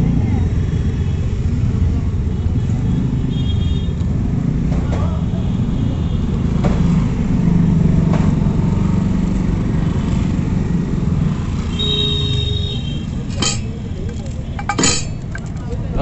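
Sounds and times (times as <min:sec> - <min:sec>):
street traffic: 0:00.0 - 0:16.0
vehicle engine rumbling: 0:12.2 - 0:16.0.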